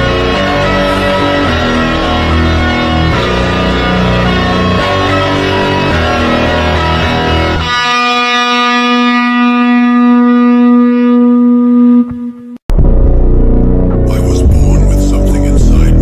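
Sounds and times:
long held distorted note: 8.6s - 16.0s
aggressive phonk track with heavy bass: 12.8s - 16.0s.

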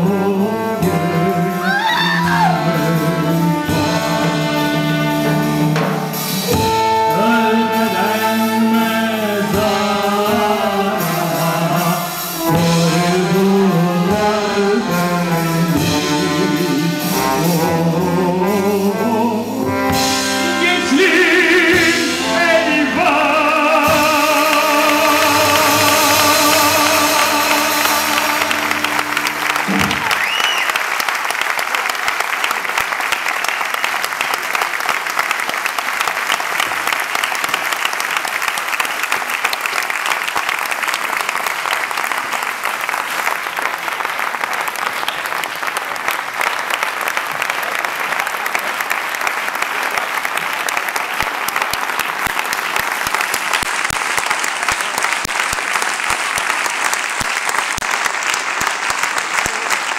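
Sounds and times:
brass band chord: 0.0s - 30.2s
audience applauding: 23.9s - 59.9s.

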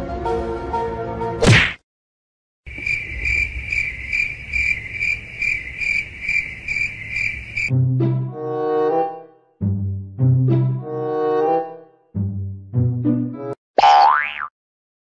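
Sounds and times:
cricket chirping: 2.7s - 7.7s.

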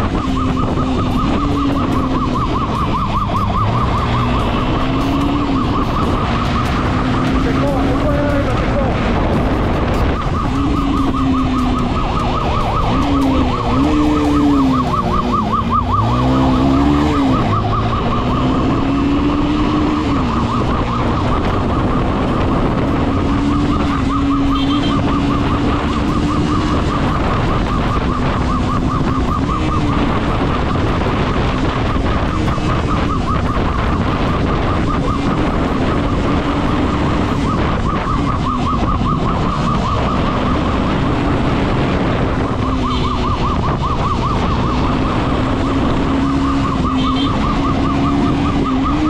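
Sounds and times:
motorcycle engine revving: 0.0s - 49.0s
police siren yelping: 0.0s - 49.0s
wind rushing: 0.0s - 49.0s.

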